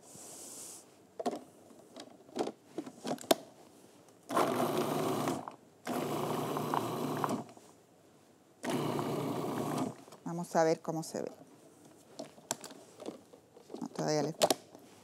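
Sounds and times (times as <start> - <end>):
food processor chopping: 4.3 - 7.5, 8.6 - 10.0.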